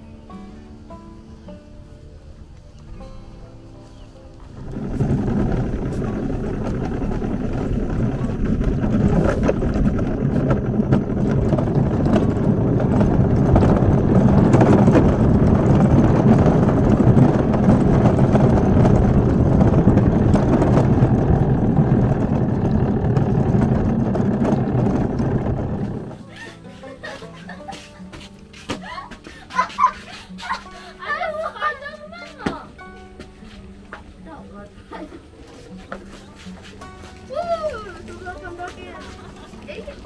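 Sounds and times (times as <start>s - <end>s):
kart rumbling: 3.9s - 27.6s.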